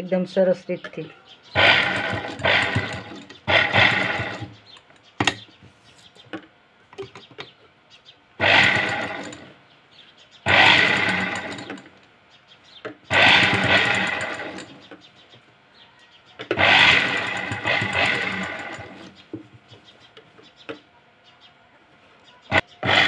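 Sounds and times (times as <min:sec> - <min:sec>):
sewing machine stitching: 0:01.6 - 0:04.5, 0:08.4 - 0:09.5, 0:10.5 - 0:11.9, 0:13.1 - 0:14.8, 0:16.6 - 0:19.1.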